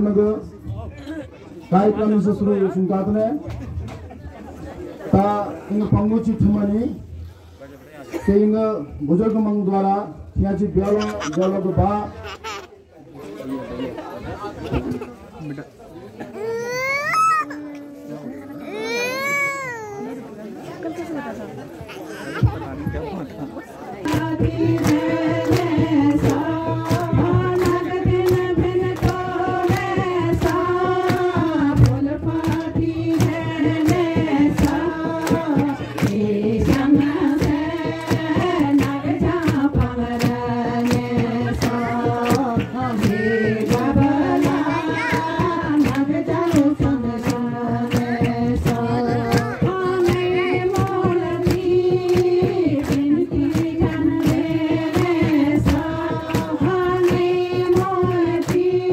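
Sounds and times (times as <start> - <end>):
group singing unaccompanied: 23.9 - 58.9
hand claps: 24.0 - 58.9.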